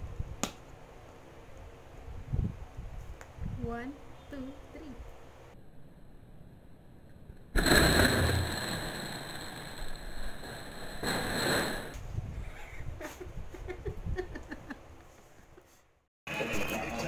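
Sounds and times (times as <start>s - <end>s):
woman laughing: 12.4s - 14.8s.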